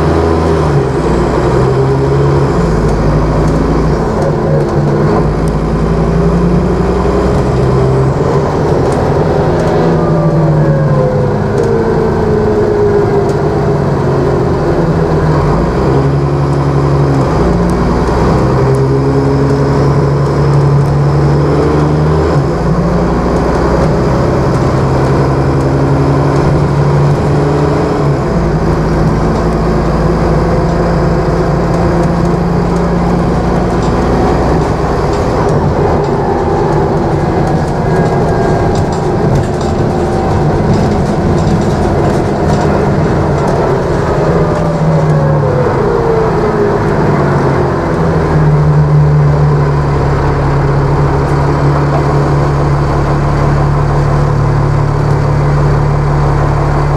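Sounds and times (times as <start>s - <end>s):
bus engine running: 0.0s - 56.9s
drivetrain whine: 0.0s - 56.9s.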